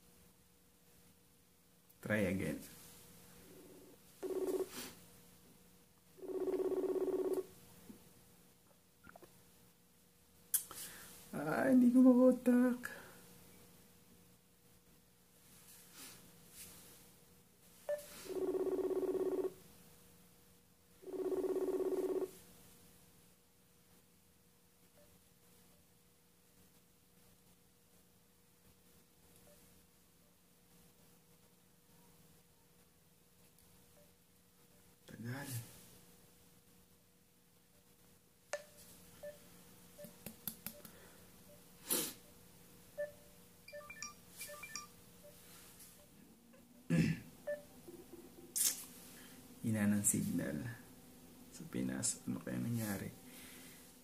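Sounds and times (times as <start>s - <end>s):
pulsing phone ringing tone: 4.2s - 4.8s, 6.2s - 7.5s, 17.9s - 19.6s, 21.0s - 22.3s, 43.0s - 45.4s
short electronic beeps: 43.0s - 45.4s.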